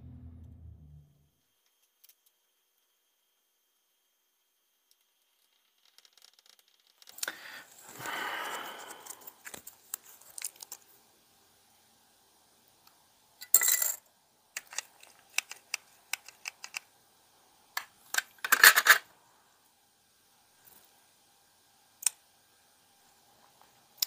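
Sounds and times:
plastic parts clicking and clattering: 0:14.6 - 0:16.9, 0:17.8 - 0:19.1
plastic parts rattling: 0:18.1 - 0:19.0.

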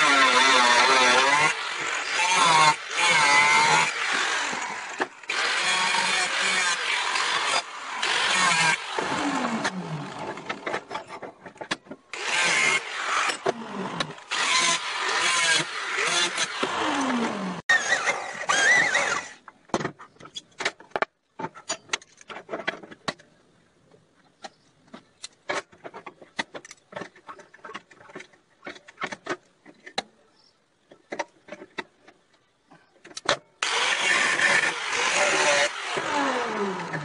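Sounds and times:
angle grinder cutting steel: 0:00.0 - 0:10.8, 0:12.1 - 0:19.4, 0:33.6 - 0:37.0.

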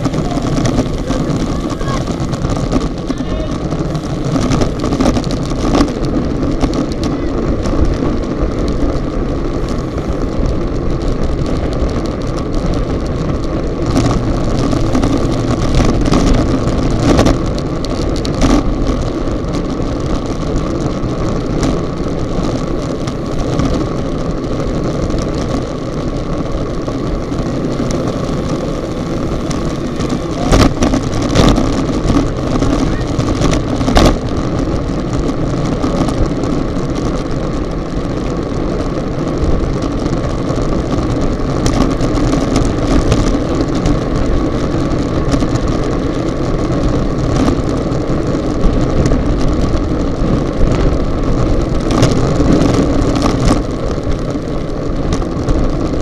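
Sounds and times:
road and tyre rumble: 0:00.0 - 0:56.0
wind rushing over microphone: 0:00.0 - 0:56.0.

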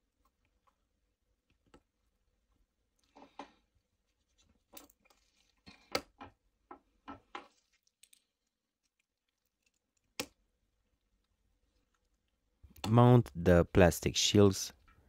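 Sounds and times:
gloved fingers rustling: 0:02.8 - 0:06.5.

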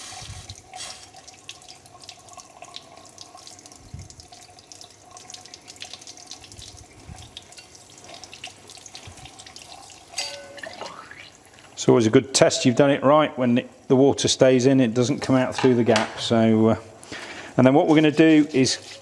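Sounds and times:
tap water splashing into sink: 0:00.2 - 0:11.8, 0:15.2 - 0:16.3.

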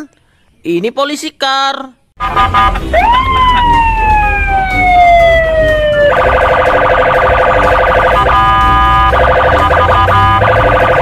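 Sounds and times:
low rumble of traffic: 0:02.2 - 0:11.0
police siren wailing: 0:02.2 - 0:11.0.

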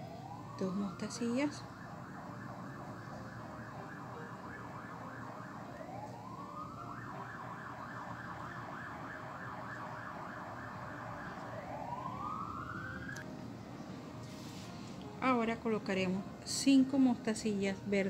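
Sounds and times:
emergency siren yelping and wailing: 0:00.0 - 0:13.2.

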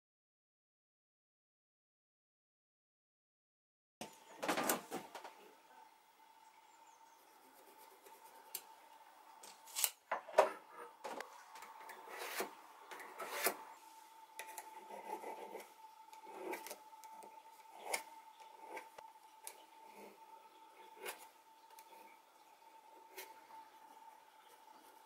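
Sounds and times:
faint high hum: 0:04.0 - 0:25.0
pencil scraping on wood: 0:11.8 - 0:13.8, 0:14.4 - 0:16.8.

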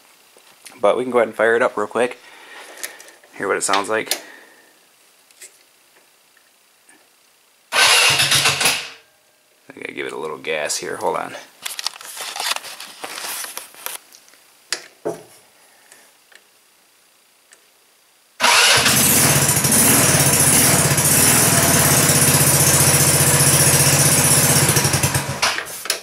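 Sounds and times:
go-kart engine running: 0:07.8 - 0:08.9, 0:18.4 - 0:25.6.

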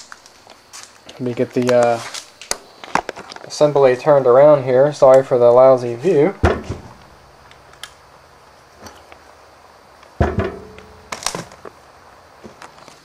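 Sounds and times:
heavy metal part clunking on floor: 0:06.4 - 0:07.1, 0:10.2 - 0:11.6
sharp thump: 0:06.4 - 0:07.1, 0:10.2 - 0:11.5.

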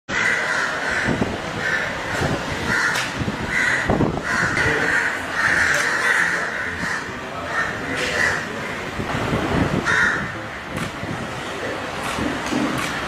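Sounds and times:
crows cawing: 0:00.1 - 0:09.0, 0:09.8 - 0:11.1.

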